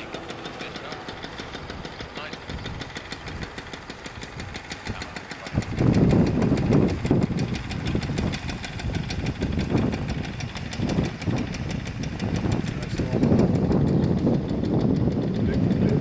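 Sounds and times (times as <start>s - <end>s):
fine ticking: 0.0s - 16.0s
moped engine running: 0.0s - 16.0s.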